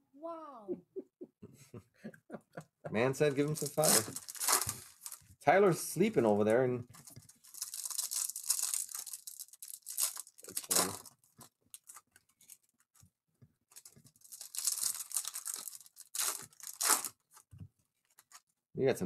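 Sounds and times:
wrapper tearing and crinkling: 3.5 - 5.2, 7.0 - 12.6, 13.7 - 17.4.

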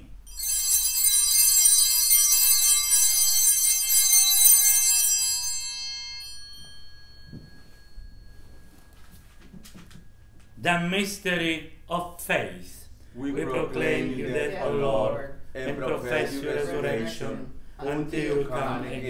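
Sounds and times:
altar bells ringing: 0.0 - 10.8.

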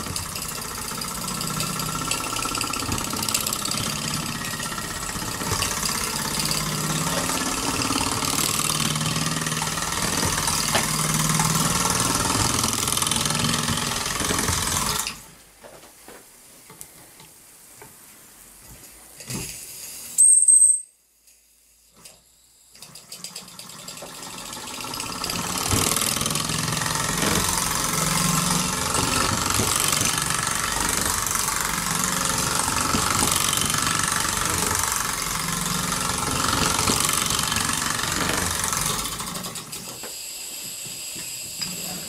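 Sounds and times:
model steam engine hissing and rattling: 0.0 - 15.2, 19.2 - 20.2, 22.8 - 42.0.

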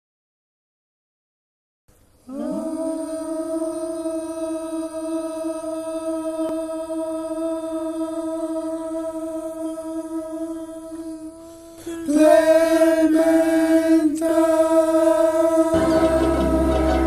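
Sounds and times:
person singing long note: 2.2 - 12.7, 15.7 - 17.0.

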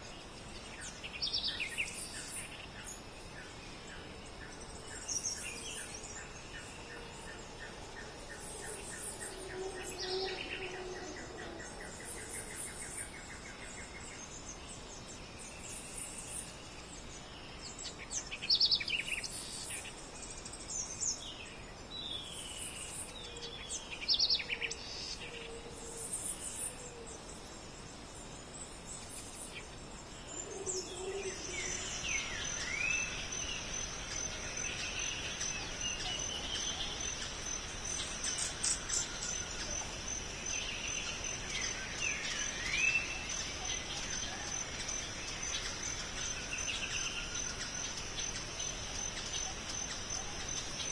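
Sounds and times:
high insect whine: 0.0 - 17.7, 22.4 - 50.9
birds chirping and whistling: 30.2 - 50.9.

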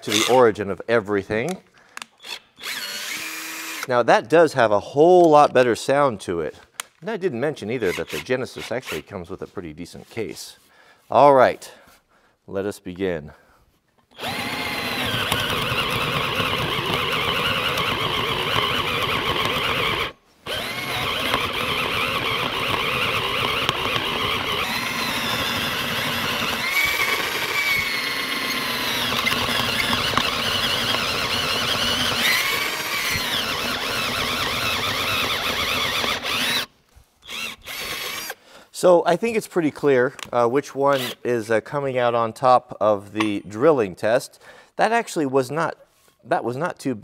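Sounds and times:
cordless drill whining: 0.0 - 0.4, 2.0 - 3.9, 7.8 - 8.3, 14.1 - 38.4, 40.9 - 41.3.

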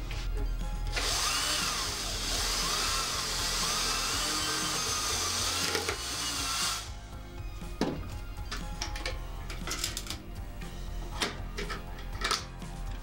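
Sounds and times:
background music: 0.0 - 13.0
cordless drill boring into wood: 0.9 - 7.0.

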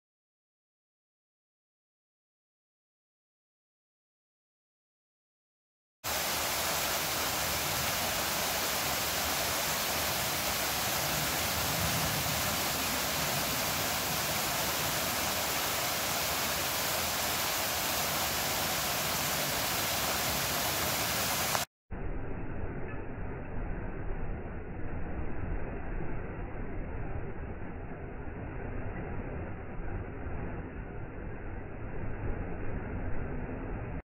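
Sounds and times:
waterfall rushing: 6.1 - 21.7.

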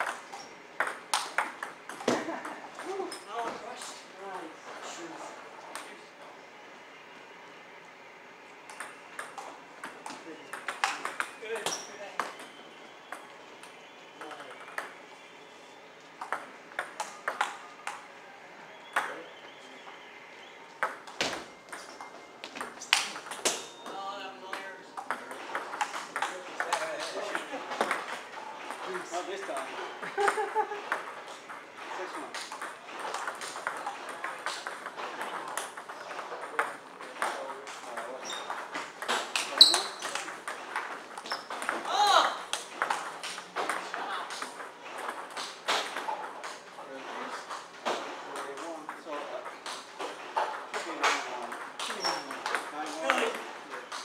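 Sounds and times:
table tennis ball hits: 0.0 - 3.6, 8.7 - 15.0, 16.2 - 18.0, 20.8 - 54.0
table tennis ball clicking: 8.7 - 12.5
high-pitched shoe squeak: 38.2 - 38.6, 39.6 - 40.0.

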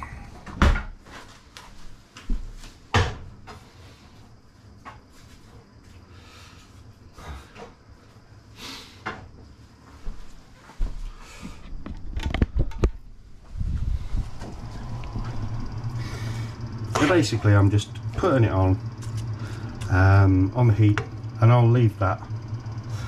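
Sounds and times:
clicks and clatter: 11.8 - 13.0.

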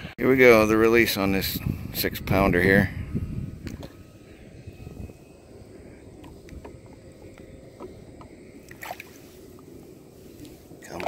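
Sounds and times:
water sloshing by kayak hull: 6.2 - 11.0.

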